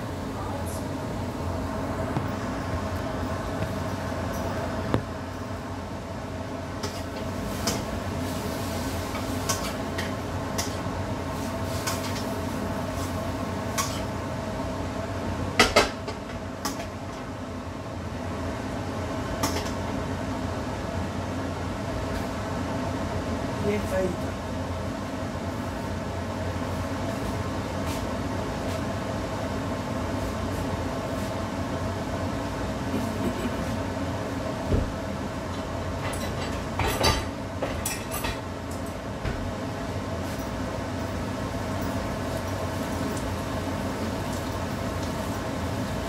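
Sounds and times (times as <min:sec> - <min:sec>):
steady mechanical hum: 0:00.0 - 0:46.0
dishes and utensils clinking: 0:36.0 - 0:38.5.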